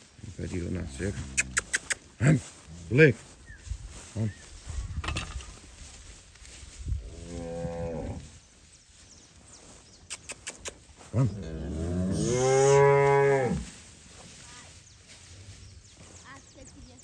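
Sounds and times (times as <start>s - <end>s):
cow mooing: 11.3s - 13.6s.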